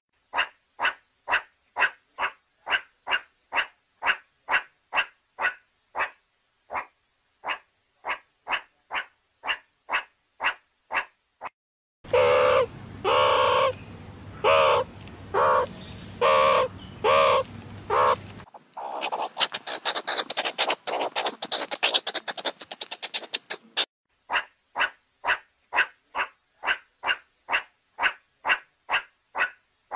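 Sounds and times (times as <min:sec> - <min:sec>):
meerkat calls: 0:00.3 - 0:11.1, 0:12.1 - 0:13.8, 0:14.4 - 0:29.6
meerkat chattering chirps: 0:14.4 - 0:29.5.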